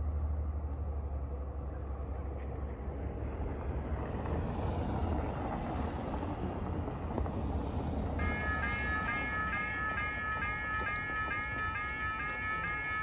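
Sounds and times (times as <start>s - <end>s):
wind rumbling on microphone: 2.4s - 11.0s.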